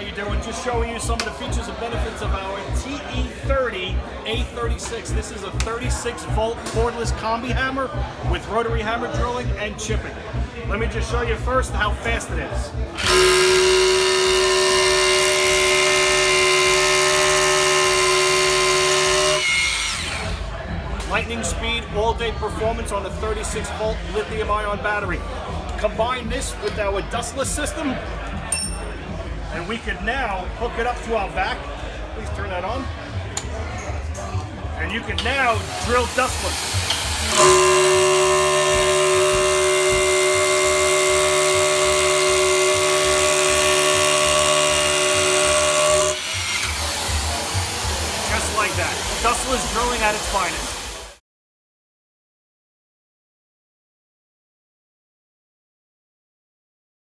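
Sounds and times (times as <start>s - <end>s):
dust extraction vacuum running: 13.0s - 20.3s, 35.5s - 51.1s
hammer drill drilling into concrete: 13.0s - 20.4s, 35.6s - 49.3s.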